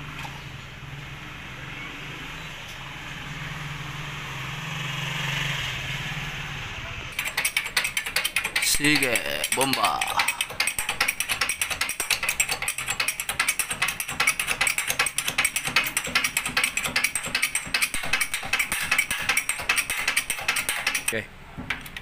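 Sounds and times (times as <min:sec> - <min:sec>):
hydraulic press pump clicking: 0:07.2 - 0:22.0.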